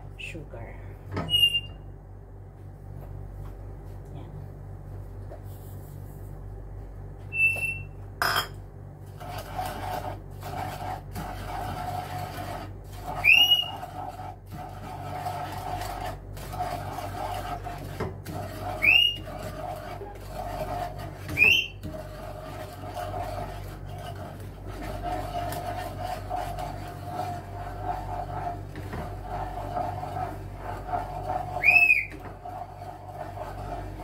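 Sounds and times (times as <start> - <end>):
wooden spatula scraping pan: 9.0 - 34.0.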